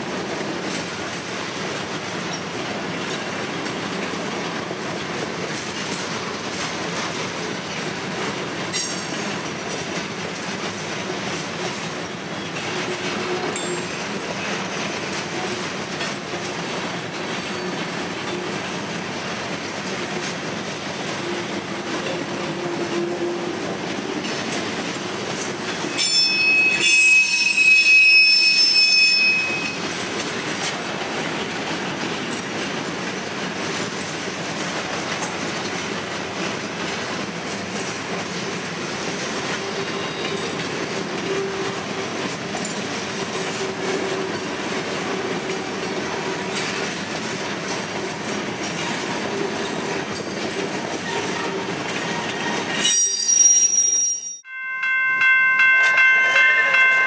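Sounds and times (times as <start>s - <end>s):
freight train wheels rumbling: 0.0s - 57.0s
high-pitched wheel squeal: 26.0s - 29.8s, 52.8s - 54.4s.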